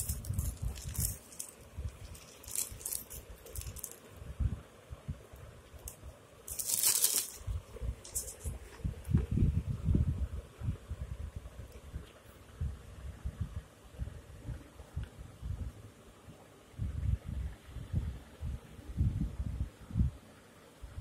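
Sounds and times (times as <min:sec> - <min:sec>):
loud paper rustle: 0:00.0 - 0:04.0, 0:06.5 - 0:08.6
plastic mailer crinkling: 0:00.0 - 0:04.1, 0:05.8 - 0:08.6.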